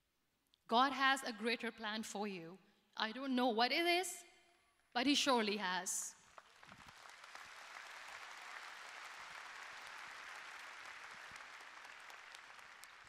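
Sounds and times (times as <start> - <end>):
large audience applauding: 6.3 - 13.0.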